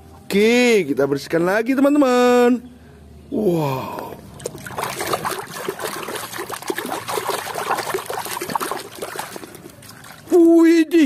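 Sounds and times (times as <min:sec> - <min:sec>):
hand sloshing in muddy water: 0:04.3 - 0:10.5.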